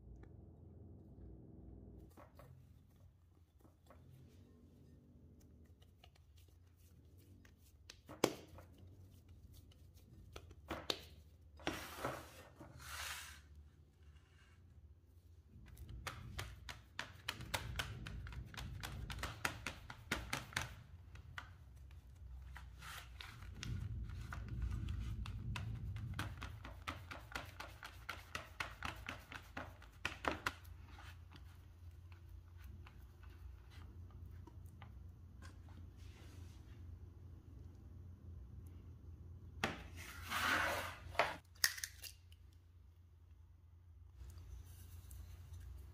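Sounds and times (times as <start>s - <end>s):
short rustling scrapes: 11.6s - 14.9s, 39.9s - 41.4s.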